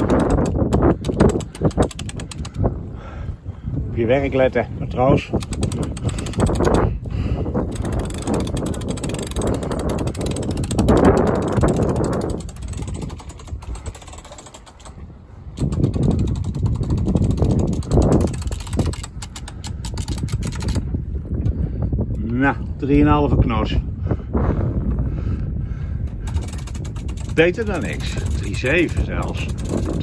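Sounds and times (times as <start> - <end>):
winch ratchet clicking: 0.0 - 2.7, 5.3 - 6.9, 7.7 - 15.0, 15.6 - 20.8, 26.2 - 30.0.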